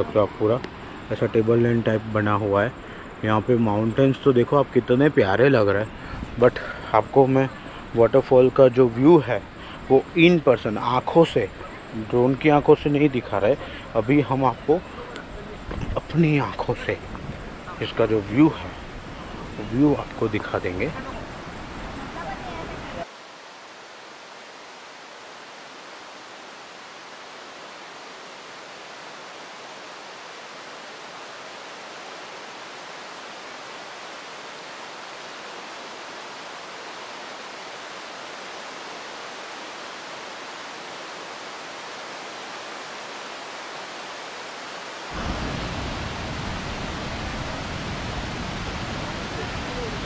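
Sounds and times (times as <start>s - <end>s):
waterfall rushing: 12.8s - 50.0s.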